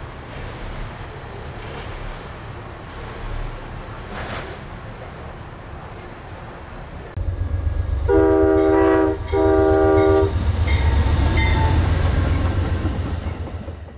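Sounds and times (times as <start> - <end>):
low rumble of train: 0.0 - 13.9
locomotive air horn blasts: 8.1 - 10.9.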